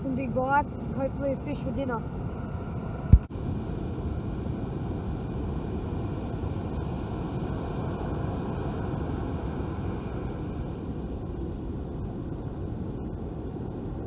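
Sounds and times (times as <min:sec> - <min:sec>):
wind buffeting microphone: 0:00.0 - 0:14.0
breaking surf: 0:03.1 - 0:14.0.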